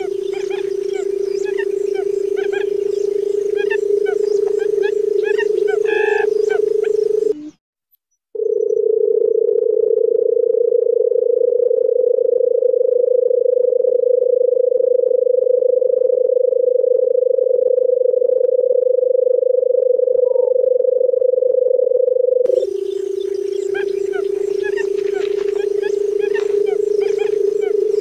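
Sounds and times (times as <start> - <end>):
low steady bird call: 0.0 - 7.6, 22.5 - 28.0
small birds chirping: 0.0 - 7.6, 22.5 - 28.0.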